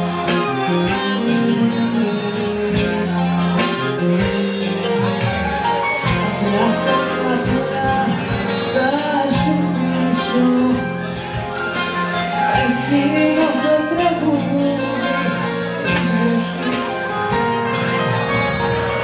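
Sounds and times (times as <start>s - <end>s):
live band playing: 0.0s - 19.0s.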